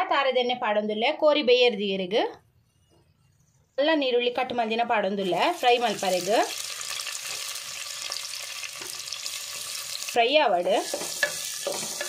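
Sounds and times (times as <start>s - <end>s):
onions sizzling in oil: 5.2s - 12.0s.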